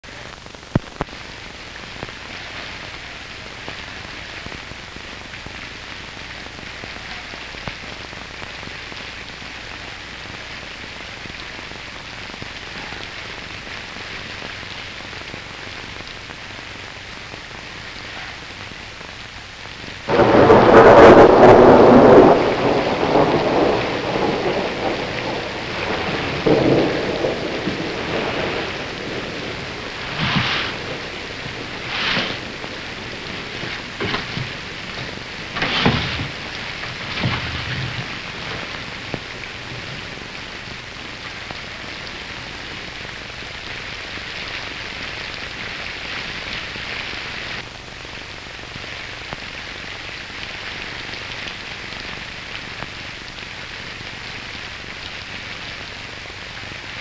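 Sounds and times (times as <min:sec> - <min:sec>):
steady rain hiss: 0:00.0 - 0:57.0
loud rumbling thunderclap: 0:20.1 - 0:41.3.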